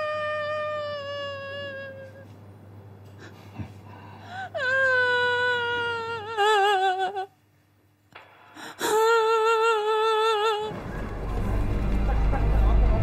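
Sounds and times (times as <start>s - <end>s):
woman crying: 0.0s - 2.3s, 4.3s - 7.4s, 8.7s - 10.7s.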